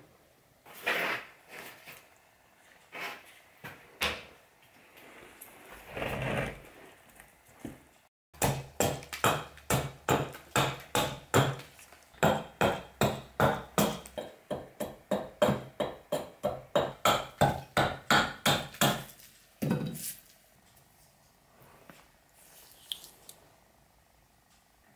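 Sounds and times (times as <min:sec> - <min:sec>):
hatchet chopping wood: 0:08.4 - 0:19.8.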